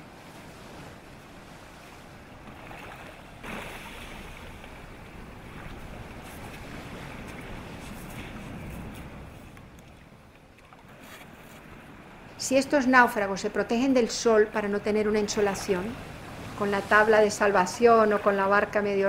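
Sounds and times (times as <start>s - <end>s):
wind on microphone: 0.0s - 10.0s
small waves washing onto shore: 0.0s - 18.9s.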